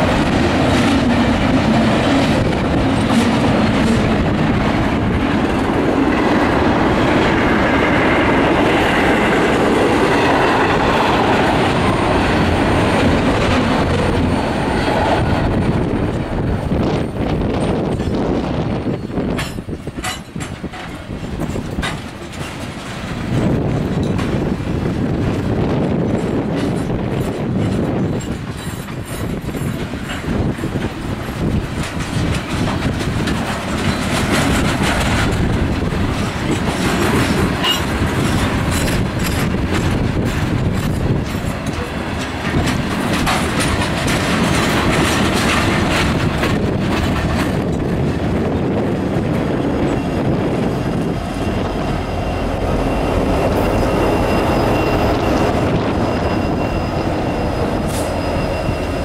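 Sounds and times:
diesel locomotive engine: 0.0 - 59.0
train wheels clattering on rails: 0.0 - 59.0
wheel squeal: 13.8 - 15.2, 49.8 - 59.0.

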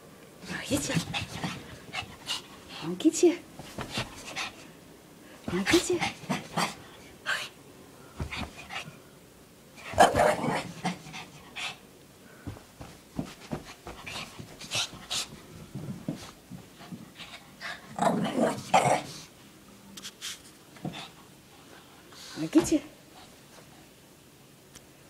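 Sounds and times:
dog play growling: 0.4 - 3.0, 3.6 - 4.7, 5.5 - 7.5, 9.8 - 11.8, 12.5 - 19.3
dog panting: 0.6 - 3.0, 3.6 - 4.7, 5.5 - 7.5, 13.2 - 15.5
scuffling: 12.4 - 16.4.

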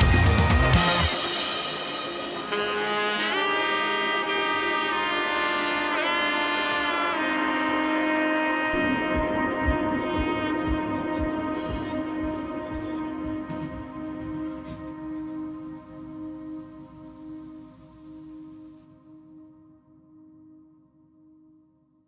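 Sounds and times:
steady low drum beat: 0.0 - 2.8, 8.7 - 17.9
melody of long held notes: 0.0 - 21.7.

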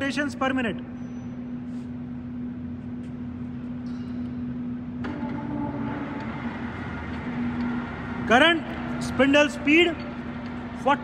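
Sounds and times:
lathe running with a hum: 4.4 - 11.0.

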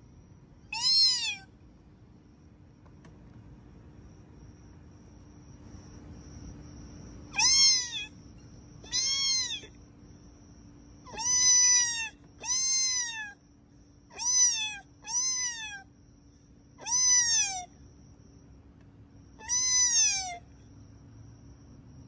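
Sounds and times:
faint high whine: 0.0 - 22.0
cat meowing: 0.7 - 1.5, 7.3 - 8.2, 8.8 - 9.8, 11.1 - 13.4, 14.1 - 15.9, 16.8 - 17.7, 19.4 - 20.5.

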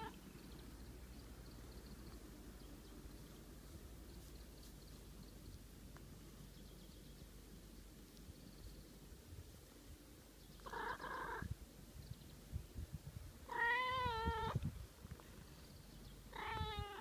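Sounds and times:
cat meowing: 13.5 - 14.6, 16.3 - 17.0.

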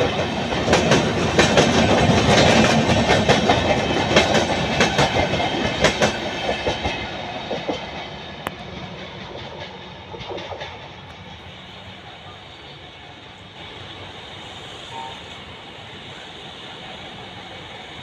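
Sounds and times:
train wheels clicking over rail joints: 0.0 - 12.0.

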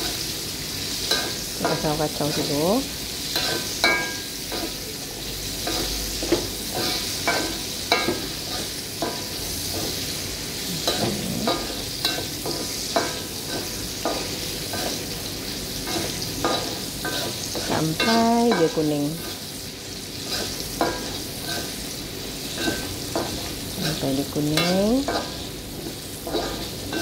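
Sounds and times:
onions sizzling in oil: 0.0 - 27.0.

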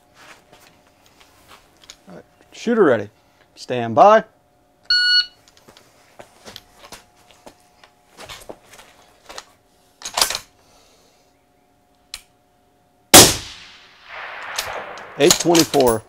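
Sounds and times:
rifle handling clicks and rattles: 9.3 - 10.5, 14.4 - 16.0
rifle shot with echo: 13.2 - 16.0.

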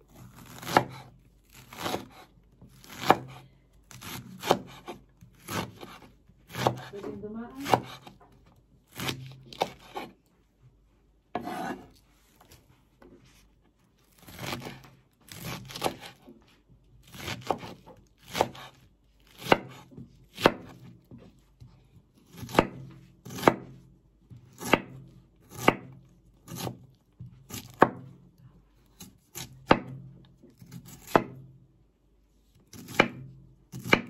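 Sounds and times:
knife chopping on cutting board: 0.4 - 8.3, 8.9 - 10.2, 11.4 - 12.0, 14.2 - 16.3, 17.0 - 21.3, 22.3 - 23.8, 24.4 - 28.1, 28.9 - 30.0, 30.6 - 31.4, 32.7 - 34.0.

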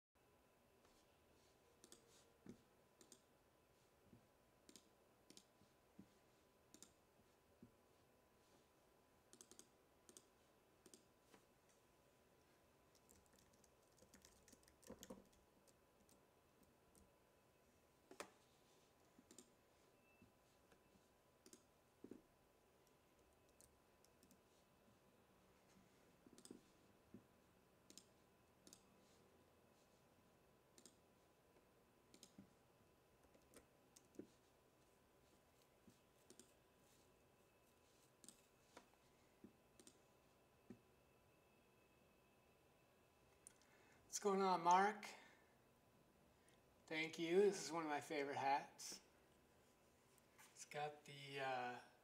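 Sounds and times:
mouse and keyboard clicking: 1.8 - 2.1, 3.0 - 3.3, 6.7 - 7.0, 9.3 - 11.1.

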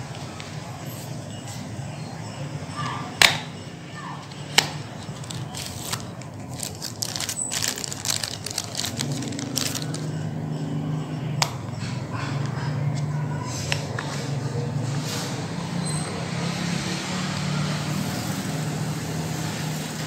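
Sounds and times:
plastic bag crinkling: 5.0 - 10.1.

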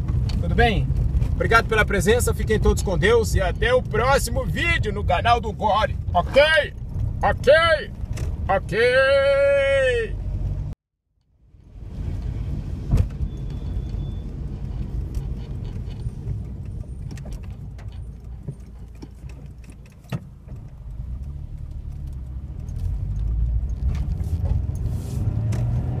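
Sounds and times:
car engine and road rumble: 0.0 - 26.0
clicks and small rattles: 14.8 - 24.8.

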